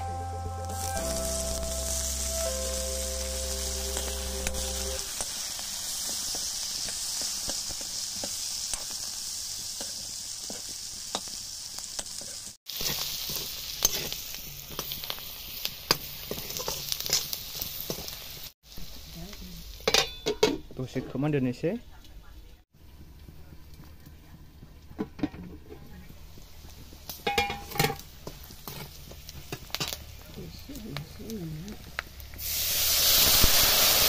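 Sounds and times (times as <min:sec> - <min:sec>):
meat sizzling in oil: 0:00.0 - 0:19.9, 0:26.2 - 0:34.0
spoon scraping metal pan: 0:12.8 - 0:14.2.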